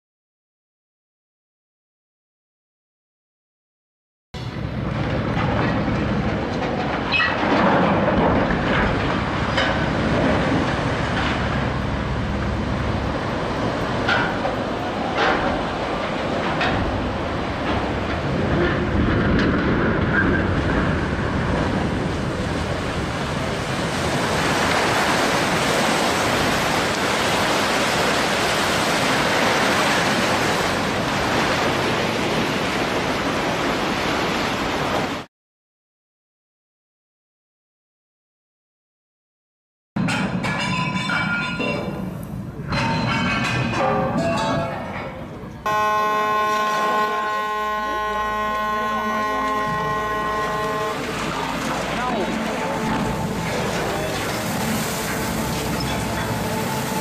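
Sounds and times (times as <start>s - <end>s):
metal clanks and knocks: 4.4s - 11.8s, 13.9s - 20.8s, 40.0s - 45.3s
continuous rumbling rush: 4.4s - 35.2s, 40.0s - 57.0s
rushing like surging water: 4.4s - 35.3s, 45.4s - 57.0s.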